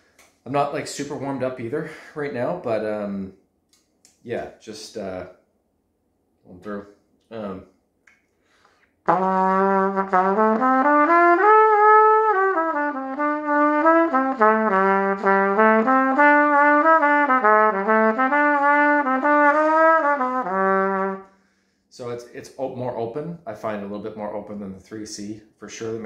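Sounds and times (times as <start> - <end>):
trumpet playing: 9.1 - 21.4.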